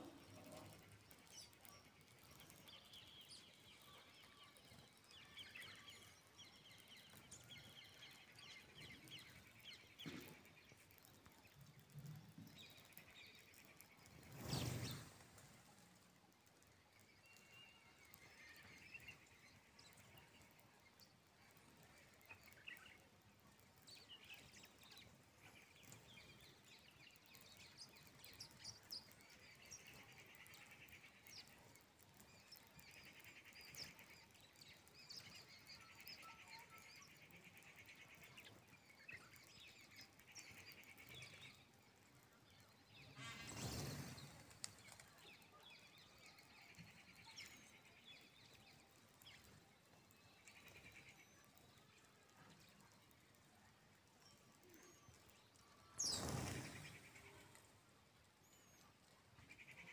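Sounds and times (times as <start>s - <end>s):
small birds chirping: 0.0s - 59.9s
wings fluttering: 4.5s - 48.0s, 54.4s - 57.9s.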